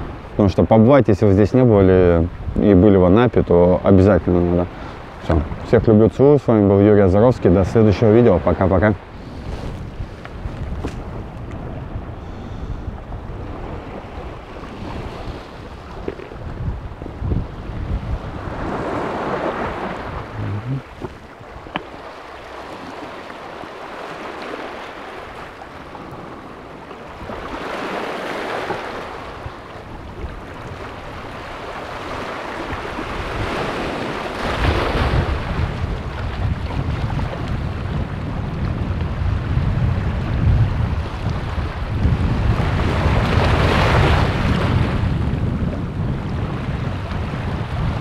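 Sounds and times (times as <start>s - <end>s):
wind buffeting microphone: 1.4s - 48.0s
waves washing over pebbles: 13.6s - 17.0s, 18.0s - 37.9s.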